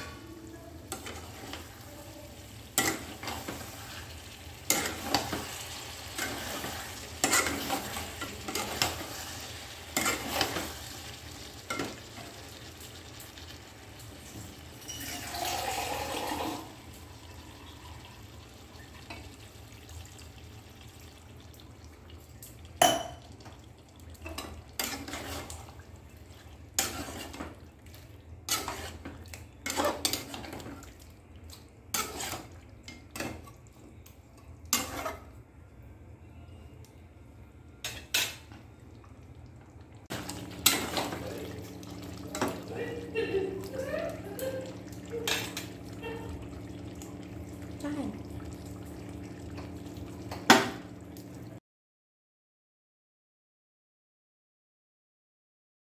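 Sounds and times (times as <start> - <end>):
curry sizzling: 0.0 - 35.8, 37.3 - 51.6
metal spatula scraping pan: 2.8 - 10.9, 24.4 - 25.7, 26.8 - 27.6, 28.5 - 30.7, 31.9 - 33.5, 34.7 - 35.3
water poured into pan: 14.4 - 18.2.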